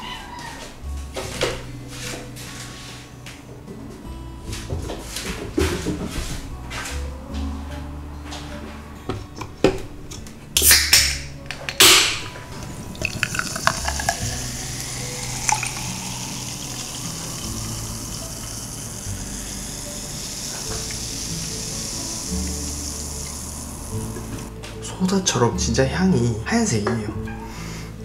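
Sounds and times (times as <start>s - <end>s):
can handling noise: 9.1s - 19.1s
soda fizzing in a glass: 12.6s - 24.5s.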